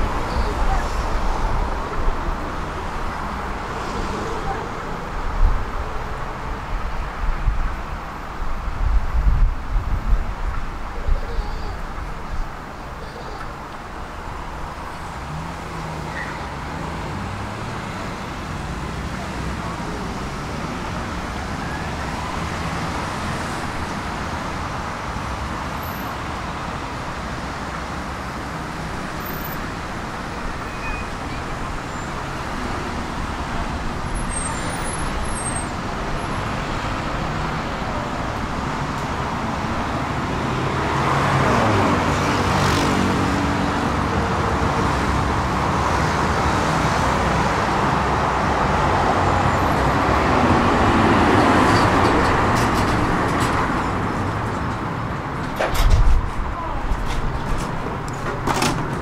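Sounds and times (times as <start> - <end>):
steady road traffic: 0.0 - 59.0
tram arriving: 47.1 - 59.0.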